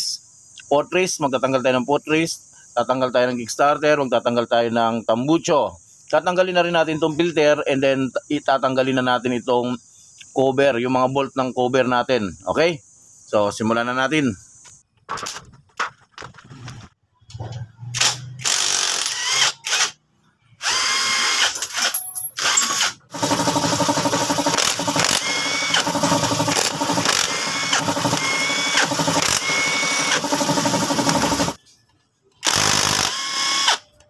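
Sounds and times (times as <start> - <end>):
cordless impact wrench: 18.0 - 20.0, 20.6 - 31.6, 32.4 - 33.8.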